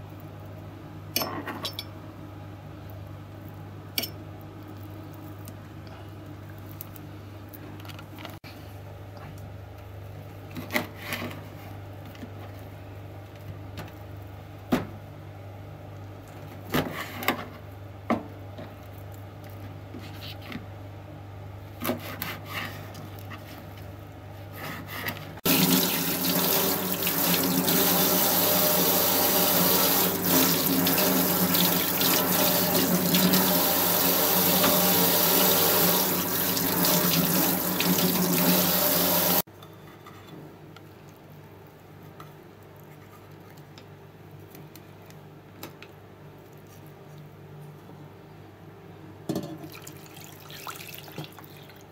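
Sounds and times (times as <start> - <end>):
tap running into sink: 25.5 - 39.4.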